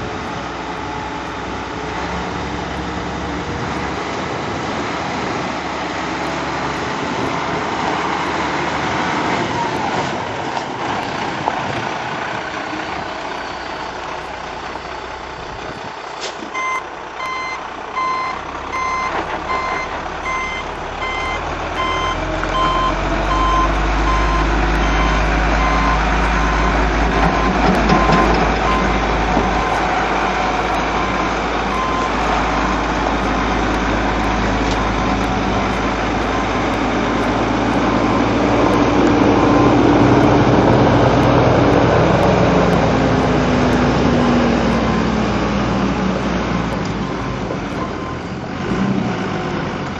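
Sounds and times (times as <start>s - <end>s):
diesel truck engine: 0.0s - 49.9s
reversing alarm beeping: 16.5s - 42.3s.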